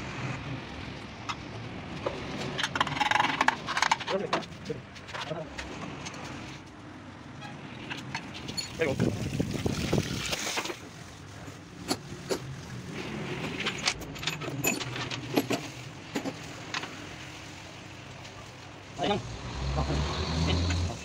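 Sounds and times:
hose water splashing on metal: 8.2s - 14.4s
metal parts clinking: 13.6s - 16.4s.

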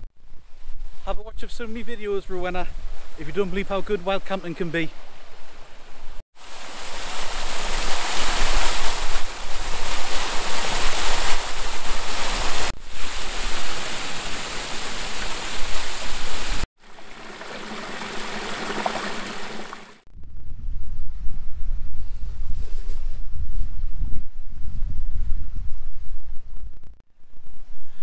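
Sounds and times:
wind rumble on microphone: 0.0s - 3.2s, 5.1s - 14.6s, 18.2s - 28.0s
stream and waterfall rushing: 6.4s - 20.0s.

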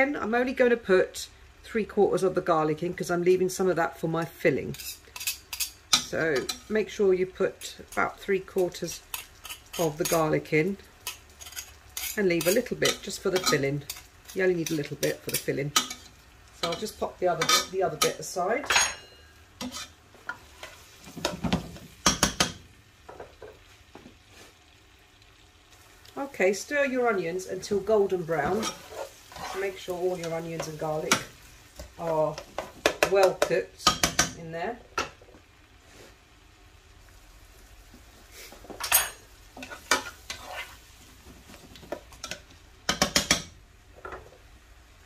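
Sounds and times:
faint frying sizzle: 0.0s - 45.0s
utensil scraping a pan: 4.7s - 6.7s, 8.8s - 10.3s, 11.0s - 21.6s, 27.6s - 33.6s, 38.3s - 42.4s.

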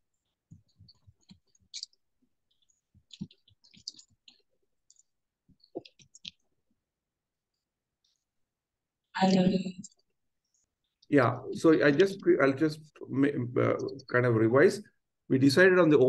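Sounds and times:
faint clicking and tapping: 0.1s - 6.9s.

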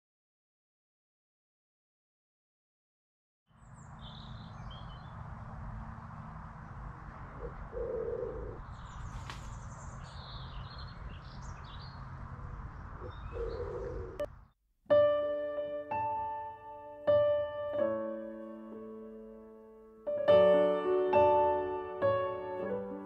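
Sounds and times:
birds chirping and singing: 3.5s - 5.3s, 6.6s - 14.3s
steady low rushing: 3.7s - 14.4s
lower bird call: 7.3s - 12.0s, 12.8s - 14.3s.

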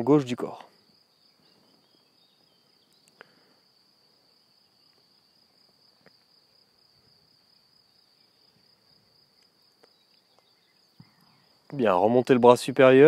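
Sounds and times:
high-pitched insect trill: 0.0s - 13.0s.

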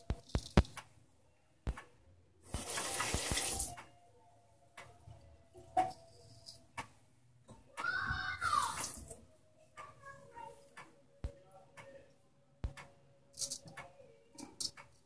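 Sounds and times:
wall clock ticking: 1.7s - 2.0s, 3.7s - 4.0s, 4.8s - 8.9s, 9.6s - 15.0s.

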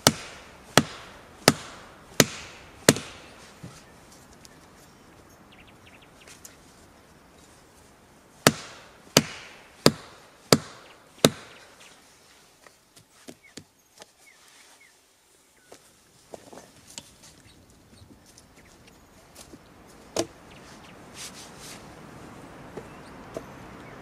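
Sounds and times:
axe chopping wood: 0.0s - 3.8s, 8.4s - 11.7s.

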